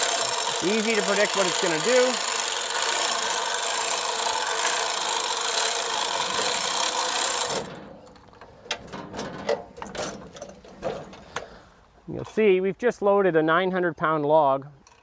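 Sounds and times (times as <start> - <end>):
hand-crank winch ratchet rasping: 0.0 - 8.8.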